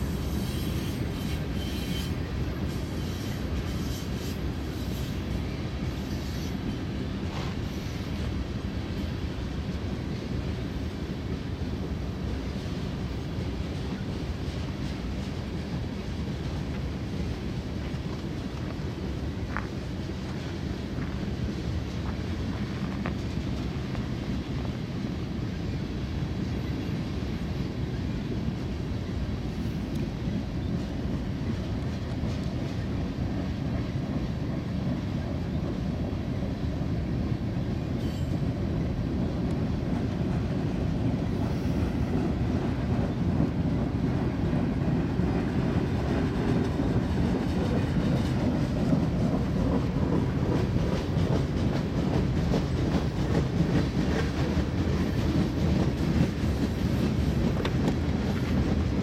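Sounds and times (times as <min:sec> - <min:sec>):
freight train cars rolling on rails: 0:00.0 - 0:59.0.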